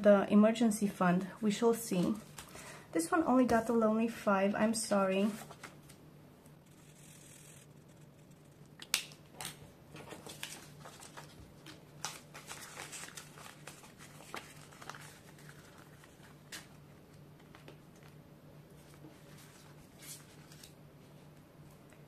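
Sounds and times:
faint low hum: 0.0 - 22.0
paper card handling: 5.2 - 6.0, 6.7 - 18.2, 18.8 - 20.8
plastic envelope crinkling: 5.3 - 6.0, 8.4 - 18.2.

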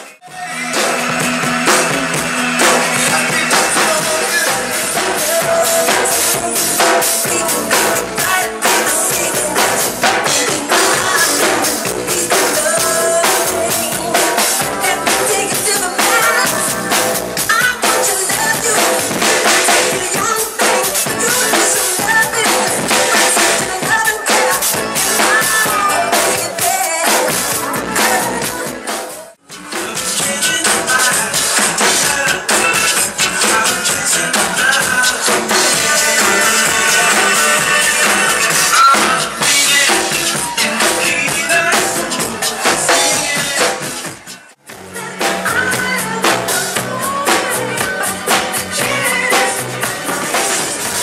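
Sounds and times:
drum kit hits and cymbal crashes: 0.0 - 51.0
loud dance music: 0.0 - 51.0.

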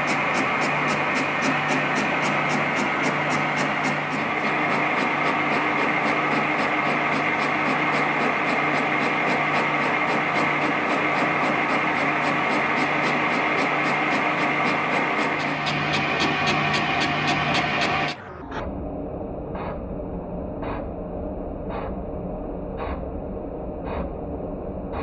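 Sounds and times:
metal lathe humming: 0.0 - 18.2.

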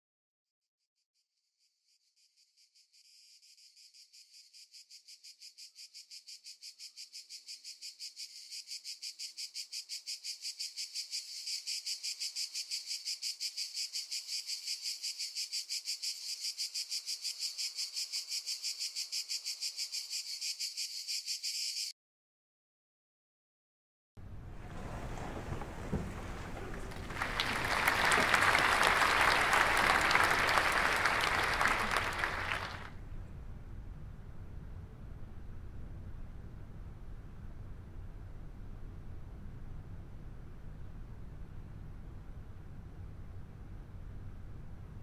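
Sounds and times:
crickets chirping: 2.1 - 21.9, 26.2 - 32.9.

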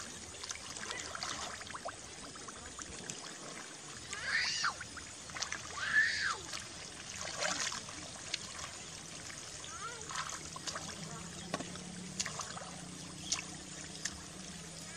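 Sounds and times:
water trickling: 0.0 - 14.9
wet mud squelching: 10.0 - 14.4.

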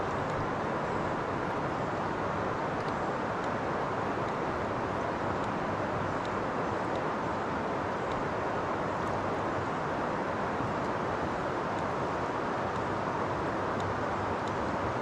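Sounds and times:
river water rushing over rapids: 0.0 - 15.0
faint ticks: 0.1 - 0.5, 2.7 - 3.6, 5.2 - 7.1, 7.9 - 8.3, 12.7 - 13.0, 13.6 - 15.0.

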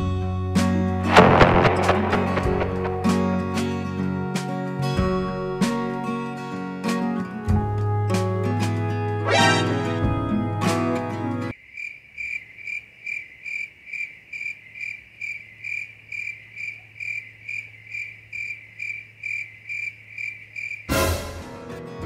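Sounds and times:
background music: 0.0 - 11.5, 20.9 - 22.0.

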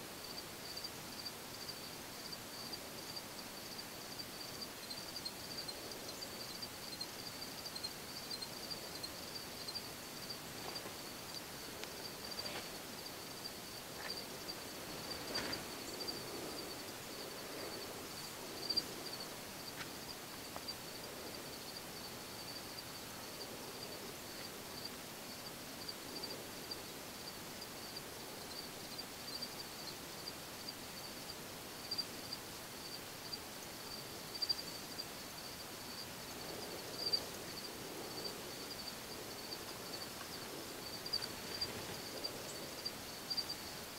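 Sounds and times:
insect chorus trilling: 0.2 - 43.9.

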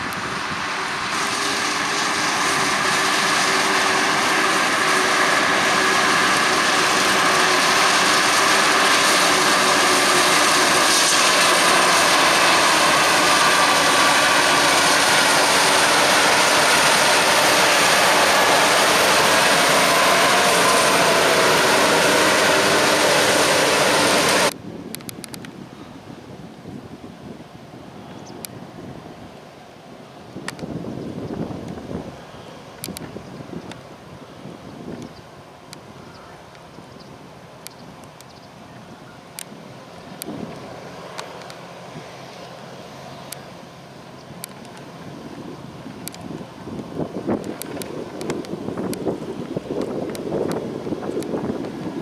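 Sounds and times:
tractor engine: 0.0 - 24.6.

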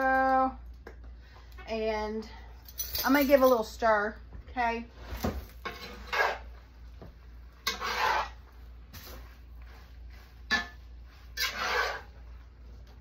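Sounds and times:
metal spatula scraping skillet: 5.6 - 6.6, 7.6 - 8.5, 10.4 - 12.3.

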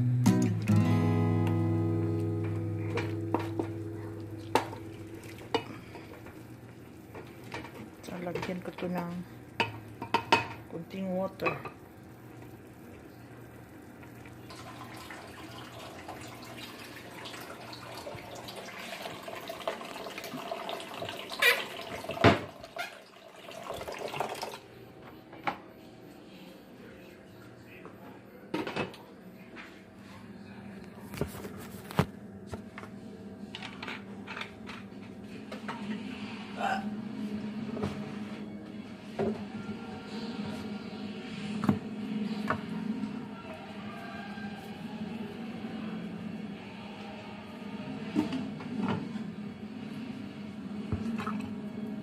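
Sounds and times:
acoustic guitar chord: 0.0 - 6.1
water running from a tap: 3.0 - 8.7, 14.0 - 24.6.

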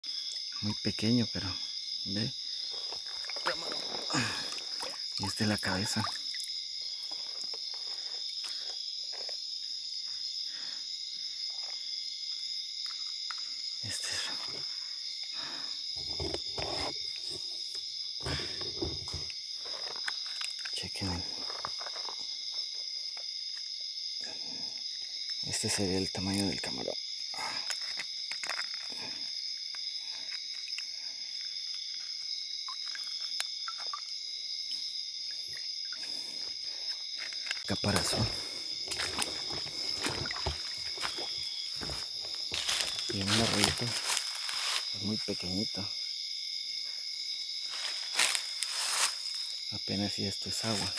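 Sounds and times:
crickets trilling: 0.0 - 50.9
night insects chirping: 0.0 - 50.9
shallow stream water splashing: 3.2 - 6.6
hands handling a prawn: 15.9 - 23.6, 27.6 - 32.2, 36.4 - 45.0.

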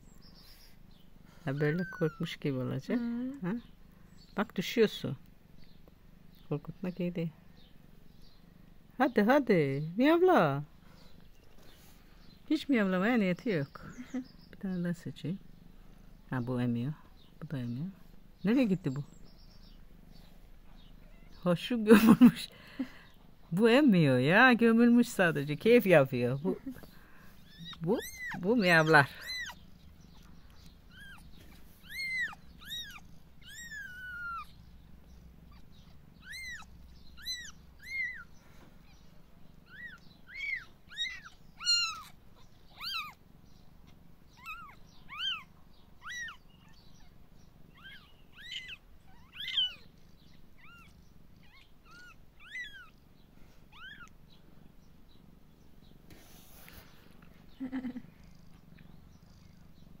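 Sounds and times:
kitten mewing: 27.4 - 29.6, 30.9 - 34.6, 35.5 - 38.3, 39.6 - 43.2, 44.4 - 46.4, 47.8 - 49.9, 50.6 - 53.0
low purr: 57.6 - 60.0.

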